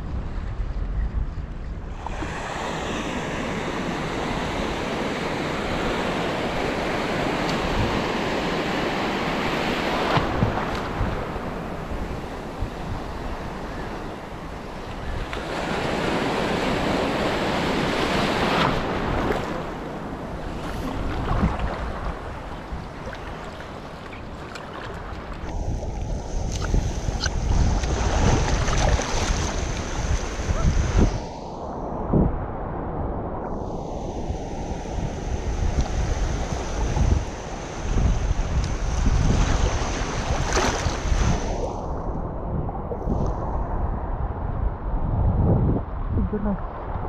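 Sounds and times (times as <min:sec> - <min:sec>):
wind rumbling on microphone: 0:00.0 - 0:47.0
surf washing over reef: 0:01.8 - 0:47.0.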